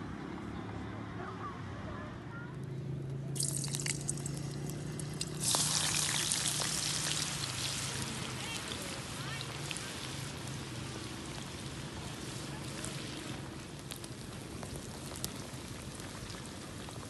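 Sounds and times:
potatoes frying in sizzling oil: 3.4s - 17.0s.

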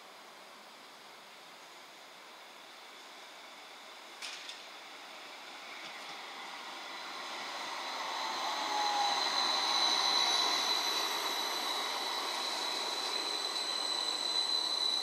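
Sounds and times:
tram running past: 4.4s - 15.0s
high-pitched whine: 5.1s - 15.0s.

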